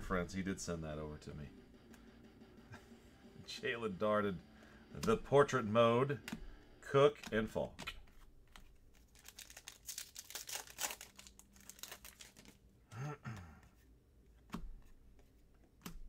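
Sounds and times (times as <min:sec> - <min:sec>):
plastic wrapper crinkling: 0:08.6 - 0:12.6.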